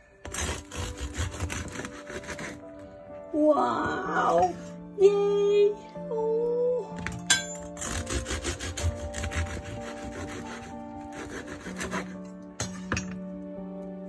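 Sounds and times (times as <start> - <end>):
bread knife sawing crusty loaf: 0.2 - 2.8, 7.7 - 12.3.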